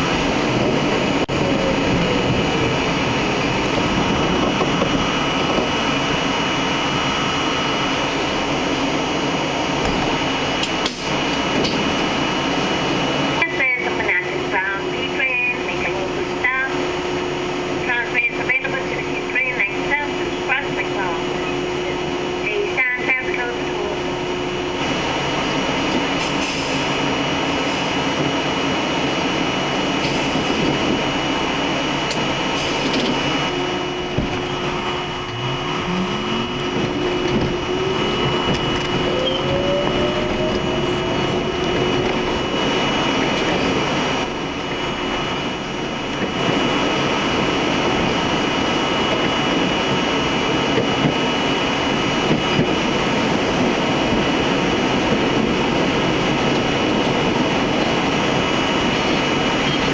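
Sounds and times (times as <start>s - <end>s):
subway train wheels on rails: 0.0s - 16.9s, 24.8s - 45.5s, 46.1s - 59.9s
traction motor whine rising: 13.9s - 26.0s, 29.6s - 50.4s.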